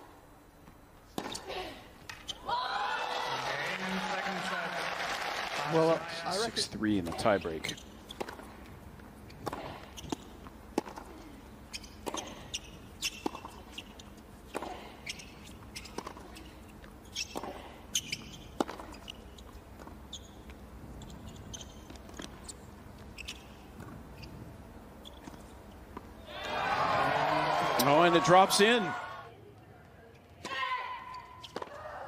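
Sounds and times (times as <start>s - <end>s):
tennis ball bouncing: 1.1s - 2.2s, 7.0s - 24.3s, 31.4s - 31.8s
sneakers squeaking on court: 7.0s - 26.2s, 31.0s - 31.8s
tennis racket hitting ball: 8.1s - 8.6s, 18.5s - 19.1s.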